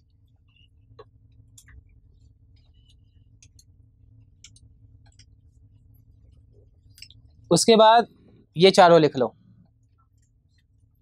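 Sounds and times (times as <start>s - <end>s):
small clicks and ticks: 0.0s - 7.5s, 9.6s - 10.9s
low steady hum: 0.0s - 11.0s.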